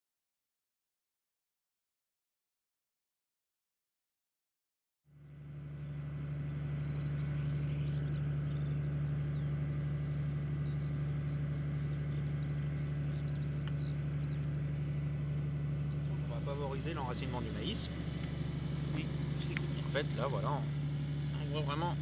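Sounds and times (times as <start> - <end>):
engine idling hum: 5.1 - 22.0.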